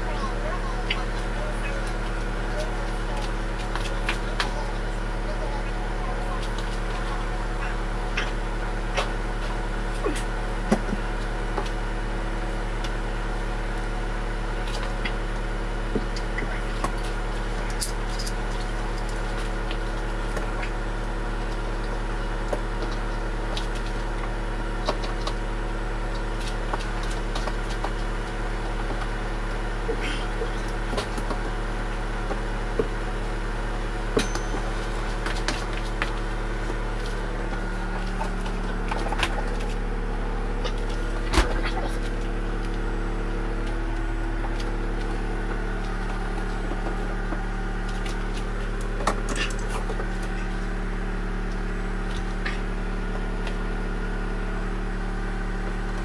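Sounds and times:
low hum: 0:00.0 - 0:56.0.

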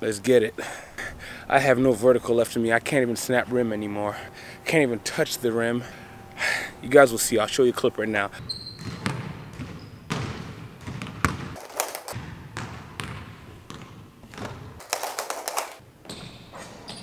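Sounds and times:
basketball bouncing on wooden floor: 0:08.4 - 0:17.0.

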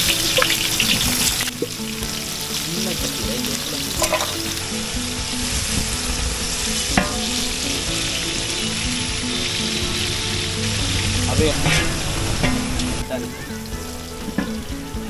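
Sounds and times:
onions sizzling in hot oil: 0:00.0 - 0:15.0
wooden paddle stirring in metal pot: 0:02.5 - 0:04.6.

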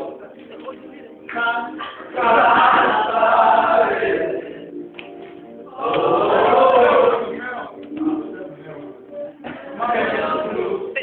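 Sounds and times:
men singing as a choir: 0:01.4 - 0:04.7, 0:09.6 - 0:11.0.

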